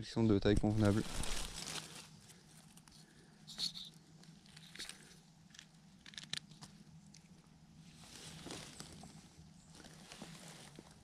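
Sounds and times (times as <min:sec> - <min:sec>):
dry leaves rustling and crackling: 0:00.6 - 0:02.8, 0:08.0 - 0:11.0.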